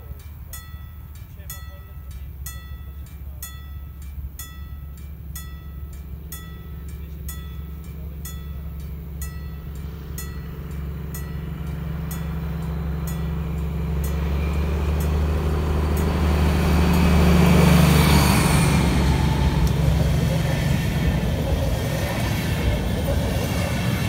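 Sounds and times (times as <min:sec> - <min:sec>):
bell dinging: 0:00.0 - 0:17.8
diesel locomotive engine drone: 0:00.0 - 0:24.0.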